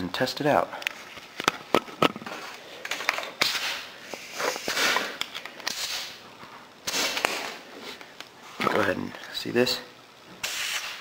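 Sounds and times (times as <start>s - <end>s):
compressed air hissing: 3.4s - 6.2s, 10.4s - 11.0s.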